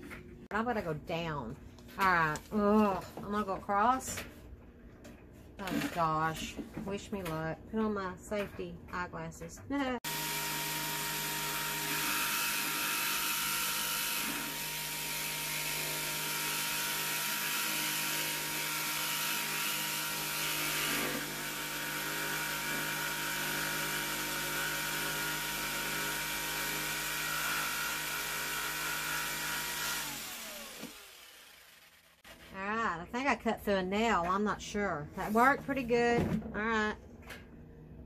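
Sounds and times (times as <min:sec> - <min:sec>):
jigsaw cutting wood: 0:10.0 - 0:32.8.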